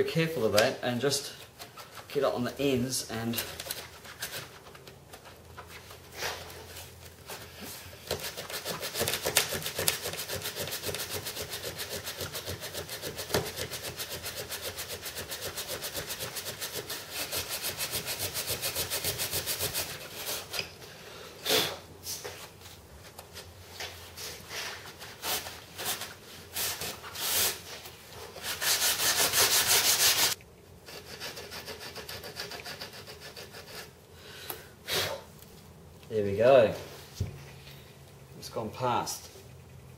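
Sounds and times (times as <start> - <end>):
sandpaper rasping back and forth: 7.3 - 20.6, 24.4 - 34.0.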